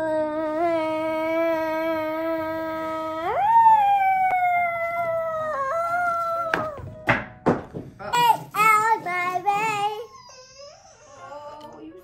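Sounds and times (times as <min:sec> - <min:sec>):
child's long vocal sound: 0:00.0 - 0:06.8.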